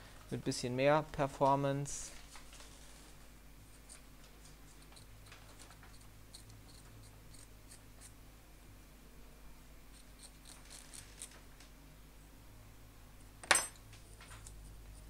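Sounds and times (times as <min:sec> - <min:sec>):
low steady hum: 0:00.0 - 0:15.0
scalpel blade scratching: 0:09.9 - 0:11.4.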